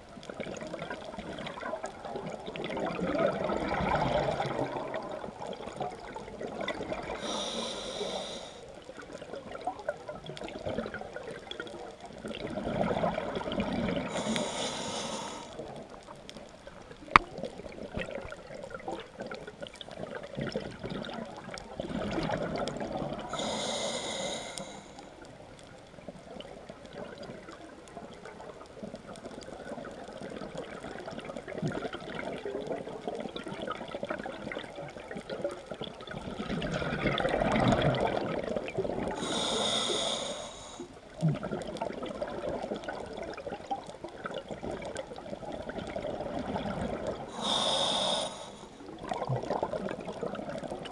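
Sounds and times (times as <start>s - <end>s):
bubbling: 0.0s - 24.6s, 26.2s - 50.9s
steady watery rumble: 0.0s - 50.9s
diver breathing through regulator: 7.1s - 8.7s, 14.0s - 15.6s, 23.3s - 25.1s, 39.1s - 40.9s, 47.3s - 48.8s.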